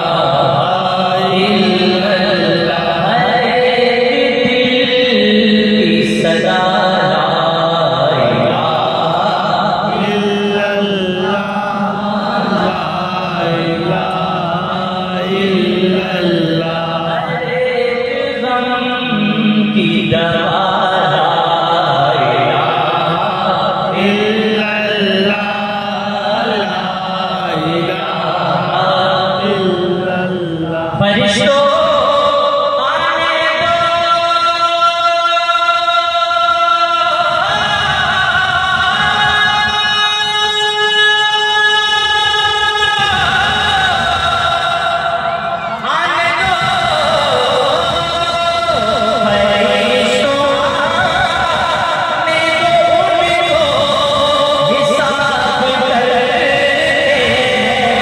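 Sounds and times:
steady drone: 0.0s - 33.6s
person chanting devotional poem: 0.0s - 58.0s.

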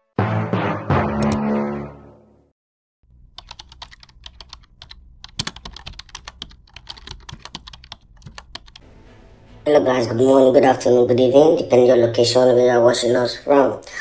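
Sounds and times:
keyboard key clicks: 3.2s - 8.8s.

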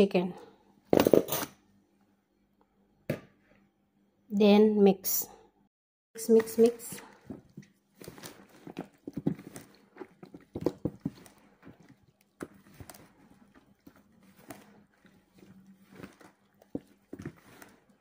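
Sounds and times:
wet squelches and slaps: 6.3s - 18.0s.

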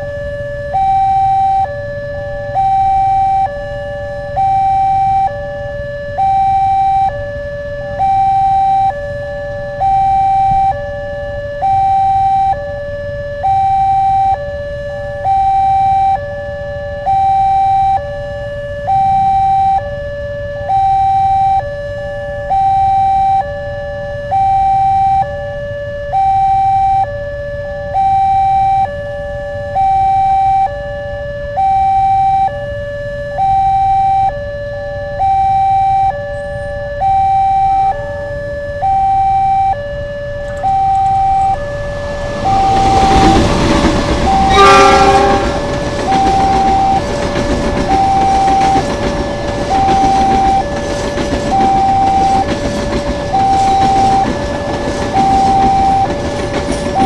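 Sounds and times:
two-tone crossing alarm: 0.0s - 57.0s.

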